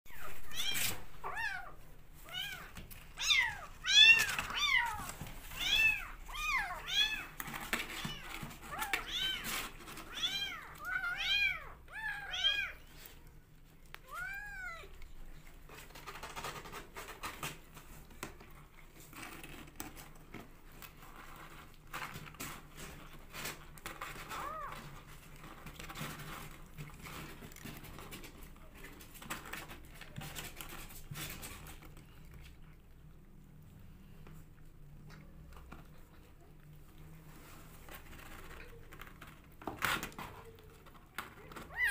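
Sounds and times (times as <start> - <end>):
kittens meowing: 41.6 - 41.9.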